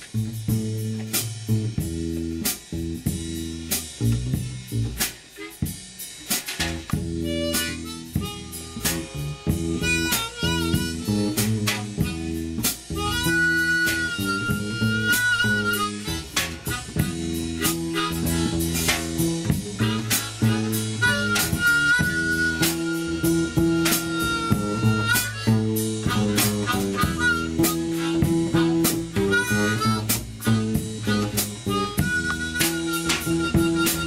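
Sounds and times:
plucked bass line: 0.0s - 5.0s, 6.6s - 34.0s
drum kit keeping time: 0.0s - 34.0s
harmonica long notes: 4.7s - 34.0s.

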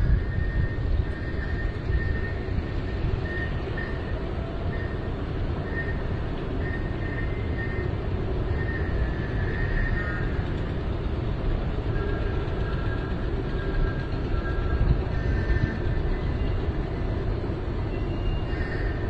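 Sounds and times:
strong wind on microphone: 0.0s - 19.0s.

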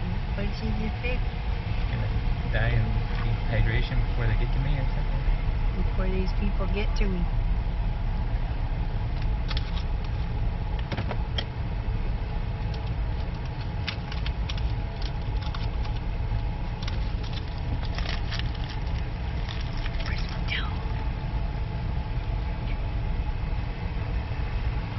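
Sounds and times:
car engine idling: 0.0s - 24.9s
light clicks and rattles: 12.6s - 20.6s.

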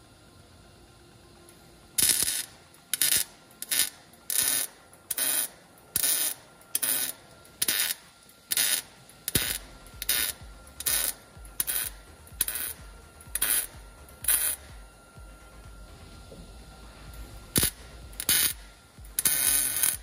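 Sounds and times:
welder arc crackle: 0.8s - 20.0s.

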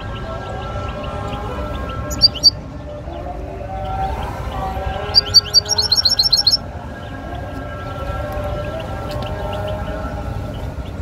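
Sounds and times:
call to prayer chanted: 0.0s - 11.0s
goldfinch sharp rising chirps: 2.1s - 2.6s, 5.1s - 6.6s.

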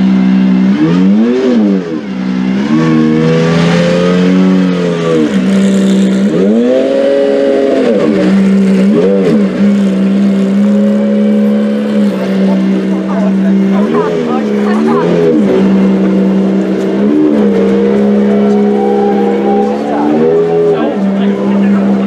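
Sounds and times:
car engine revving: 0.0s - 22.0s
car engine idling: 7.8s - 22.0s.

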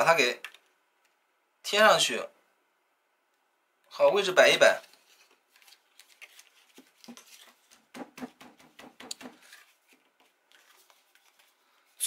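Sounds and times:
paper card rustling: 4.6s - 12.0s.

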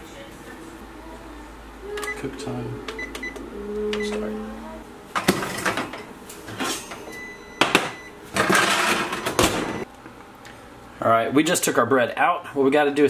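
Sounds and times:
steady low tone: 0.0s - 5.0s
oven rack rattling and clanking: 5.1s - 9.8s.

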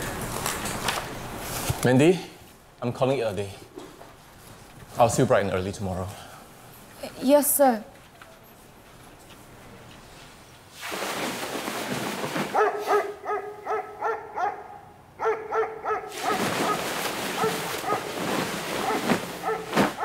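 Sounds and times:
dog barking and yelping: 12.6s - 16.8s, 17.4s - 18.1s, 18.8s - 20.0s.

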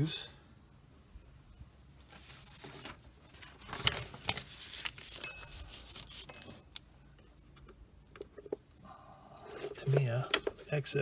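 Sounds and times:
paper towel rustling: 2.0s - 6.6s.

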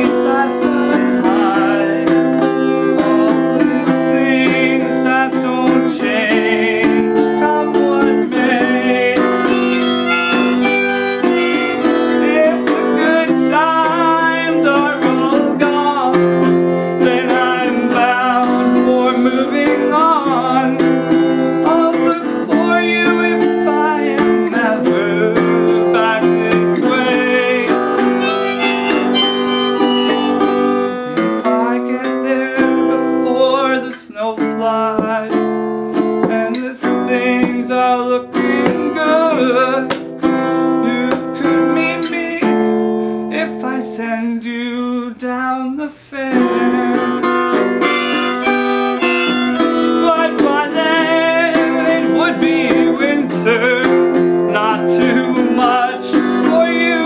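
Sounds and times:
harmonica: 0.0s - 31.7s, 46.5s - 57.0s
strummed acoustic guitar: 0.0s - 57.0s.

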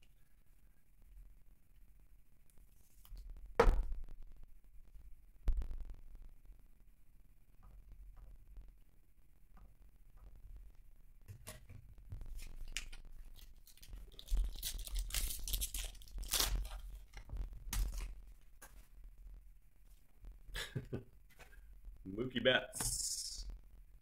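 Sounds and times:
foil wrapper tearing and crinkling: 12.3s - 18.3s.

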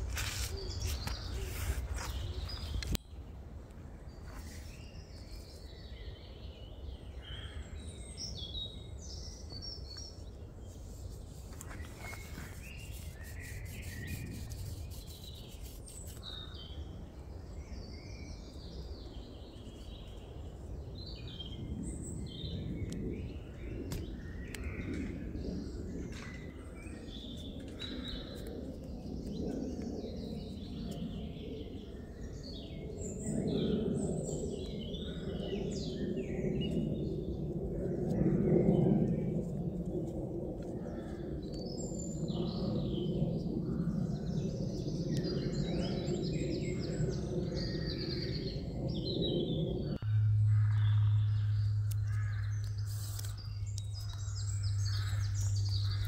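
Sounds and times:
small birds chirping: 4.2s - 16.8s, 40.9s - 56.0s
rustling of cord being handled: 10.7s - 16.2s
low steady rumble: 46.7s - 56.0s.

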